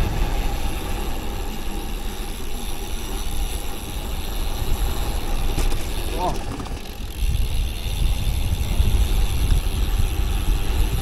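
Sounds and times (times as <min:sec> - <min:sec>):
wind rushing over microphone: 0:07.1 - 0:11.0.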